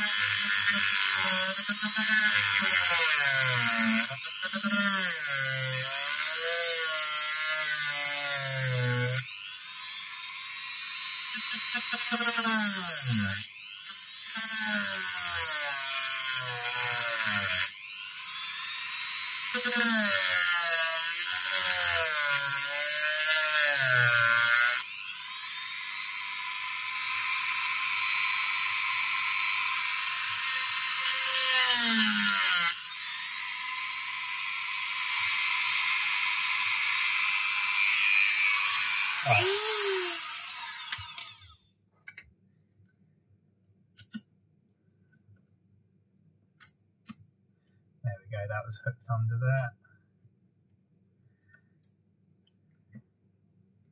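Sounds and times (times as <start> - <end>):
rotary tool grinding glass: 39.1 - 41.5.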